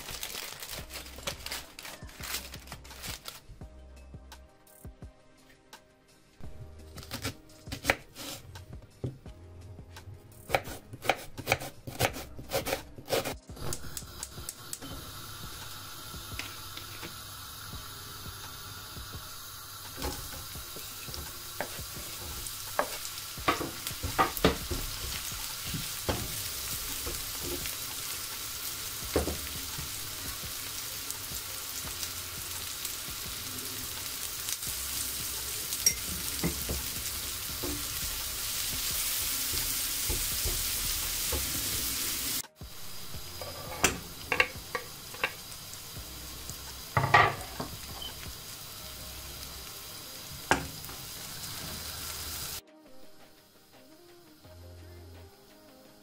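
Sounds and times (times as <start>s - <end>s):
knife chopping on wooden board: 10.5s - 13.4s
onions sizzling in oil: 10.5s - 52.6s.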